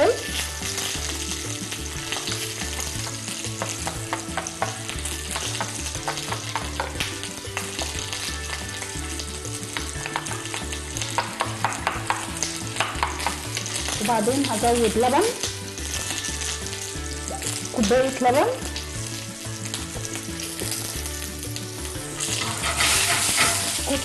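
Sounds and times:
vegetables sizzling in oil: 0:00.0 - 0:24.0
spoon scraping glass bowl: 0:22.4 - 0:23.8.

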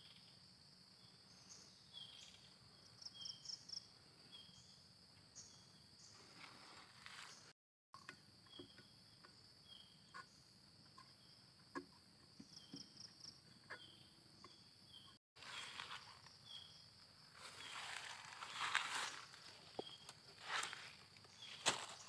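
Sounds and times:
high trill of insects: 0:15.4 - 0:22.0
rustling and handling noise: 0:17.4 - 0:22.0.

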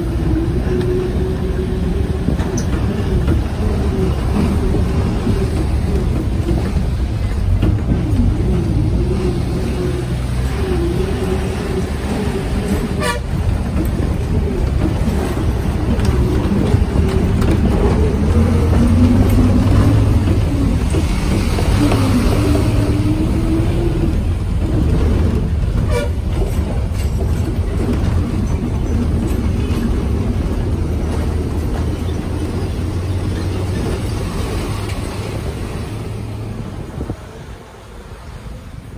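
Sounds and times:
bus engine rumble and road noise: 0:00.0 - 0:38.9.

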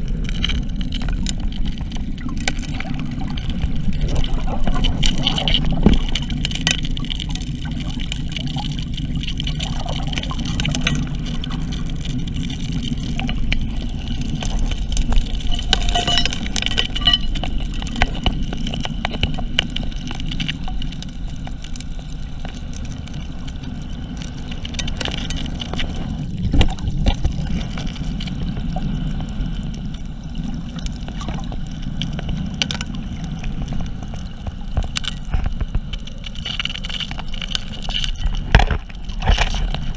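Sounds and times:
underwater dredge rumbling: 0:00.0 - 0:39.9
gravel and stones knocking: 0:12.9 - 0:19.6.

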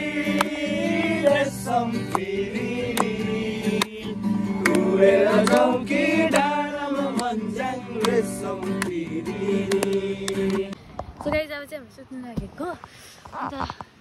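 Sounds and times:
people singing together: 0:00.0 - 0:10.8
strummed acoustic guitar: 0:00.0 - 0:10.8.

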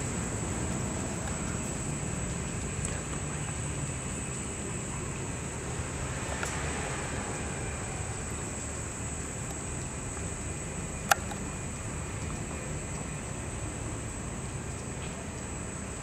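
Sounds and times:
faint high whine: 0:00.0 - 0:16.0.

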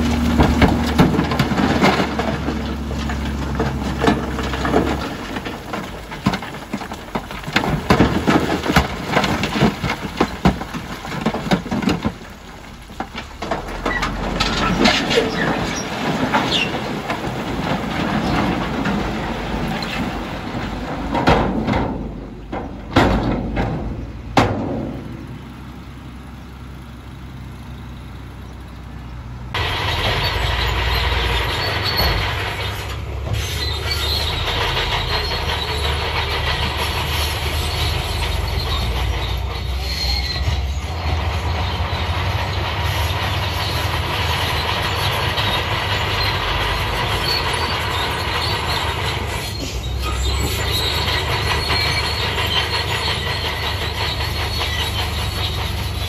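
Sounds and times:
heavy thuds of falling stones: 0:00.0 - 0:25.3
bulldozer engine and tracks: 0:00.0 - 0:56.0
dump truck engine running: 0:00.0 - 0:56.0.

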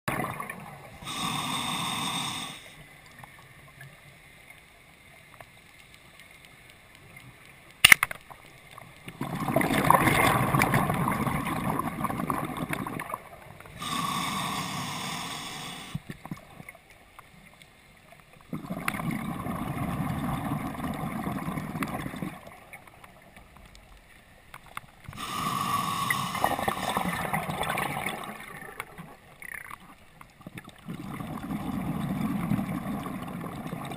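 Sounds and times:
exhaled bubbles rushing: 0:00.1 - 0:01.0, 0:09.1 - 0:13.4, 0:18.5 - 0:22.6, 0:26.2 - 0:29.2, 0:30.8 - 0:33.9
diver breathing underwater: 0:01.0 - 0:02.8, 0:13.7 - 0:16.1, 0:25.1 - 0:28.8
sharp snap: 0:07.8 - 0:08.2.

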